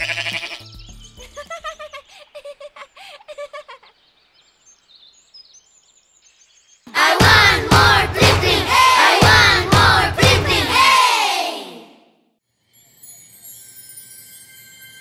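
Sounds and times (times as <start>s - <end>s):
many voices shouting: 6.9s - 12.0s.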